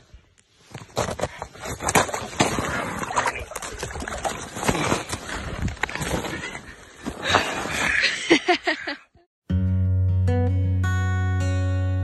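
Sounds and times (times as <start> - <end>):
knocks and scrapes against ice: 0.6 - 7.9
water splashing and sloshing: 1.0 - 8.4.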